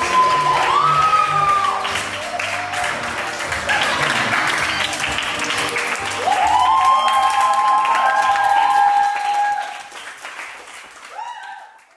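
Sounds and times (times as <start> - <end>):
person cheering whoop: 0.0 - 3.0, 6.2 - 9.9, 11.1 - 11.9
small group clapping: 0.0 - 11.9.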